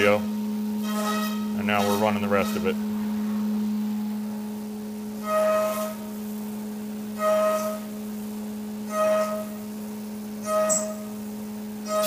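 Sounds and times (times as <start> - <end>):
milling spindle high hum: 0.0 - 12.0
cutter ringing tone: 10.4 - 11.2.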